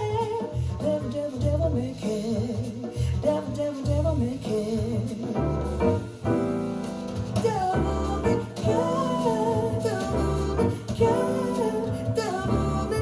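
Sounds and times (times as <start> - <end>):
piano and bass through loudspeaker: 0.0 - 13.0
person singing: 7.4 - 13.0.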